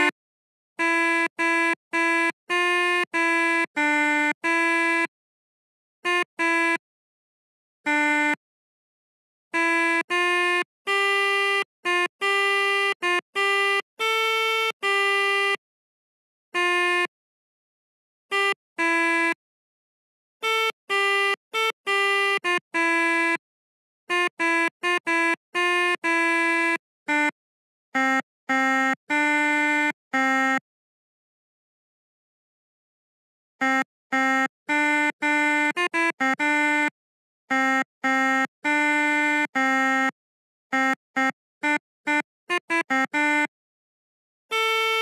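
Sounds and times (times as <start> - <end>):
melodica notes: 9.6 - 15.6, 33.6 - 40.2, 40.8 - 43.5, 44.5 - 45.0.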